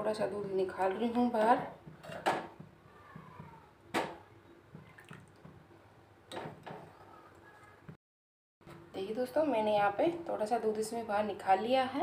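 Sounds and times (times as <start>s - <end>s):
milk dripping and splashing: 4.8s - 5.6s.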